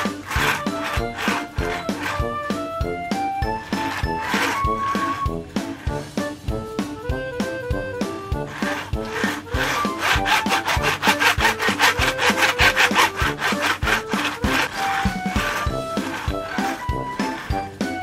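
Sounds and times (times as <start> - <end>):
background music: 0.0 - 18.0
fast rasping scraping rhythm: 0.0 - 18.0.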